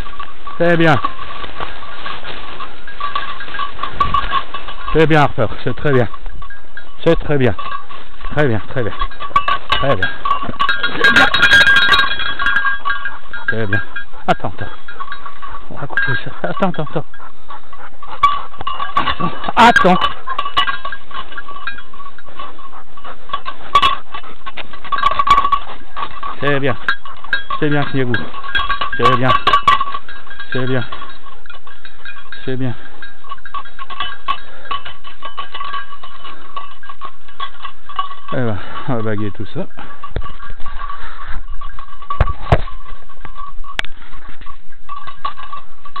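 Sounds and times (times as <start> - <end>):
rustling in dry leaves: 0.0 - 6.8, 7.5 - 16.2
light clinking: 0.0 - 46.0
dog panting: 7.9 - 35.2.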